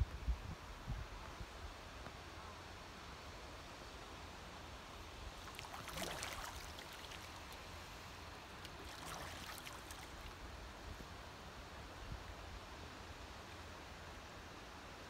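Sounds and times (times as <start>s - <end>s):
low background hiss: 0.0s - 15.0s
swan splashing in water: 5.3s - 10.4s.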